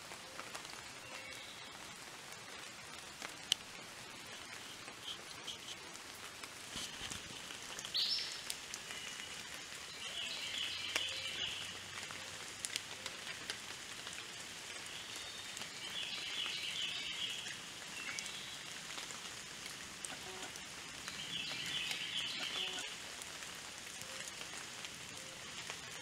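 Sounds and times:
creek running water: 0.0 - 26.0
birds chirping: 21.1 - 22.9.

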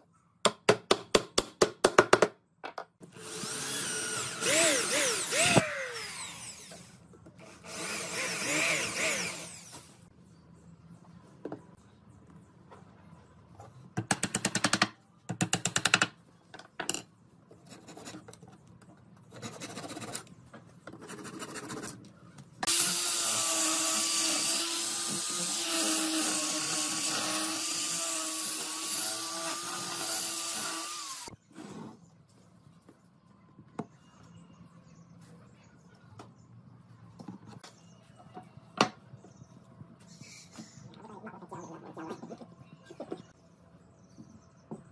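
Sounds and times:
angle grinder sanding wood: 22.7 - 31.3.

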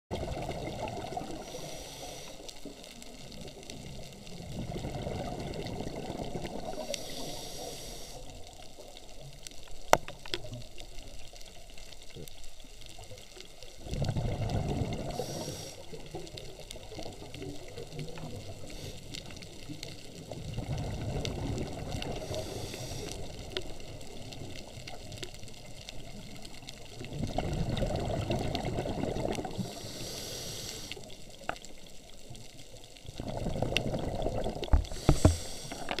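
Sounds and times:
exhaled bubbles rushing: 0.1 - 1.7, 3.2 - 6.9, 13.7 - 18.8, 20.1 - 22.6, 26.0 - 29.9, 33.0 - 35.9
regulator inhale hiss: 1.3 - 2.8, 6.7 - 8.6, 15.0 - 16.2, 18.5 - 19.5, 22.0 - 23.4, 29.4 - 31.4, 34.8 - 36.0.

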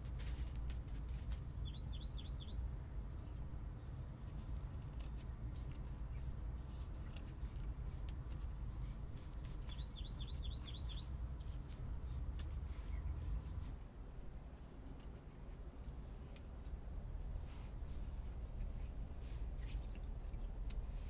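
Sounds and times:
fibres crackling and rustling: 0.0 - 1.7, 2.8 - 21.0
small bird chirping: 0.9 - 4.4, 5.1 - 13.8.

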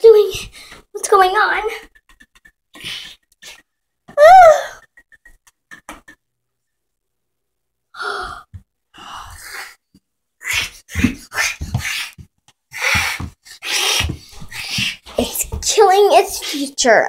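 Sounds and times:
child squealing: 4.2 - 4.8.

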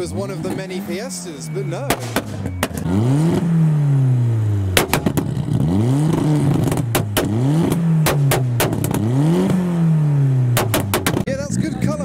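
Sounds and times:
car engine revving: 0.0 - 12.0
exhaust pops and bangs: 1.8 - 3.5, 4.7 - 9.7, 10.5 - 11.4.

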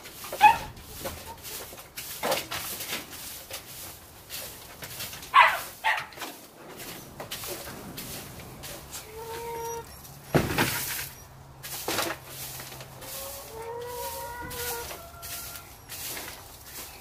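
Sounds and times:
broom sweeping straw: 0.0 - 17.0
short animal calls: 9.0 - 10.1.

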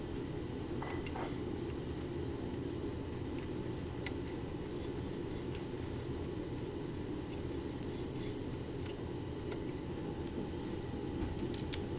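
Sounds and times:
steady low hum: 0.0 - 11.9.

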